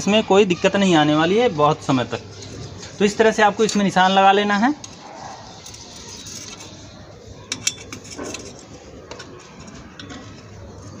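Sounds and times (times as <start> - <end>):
screwdriver scraping brick: 4.8 - 9.8.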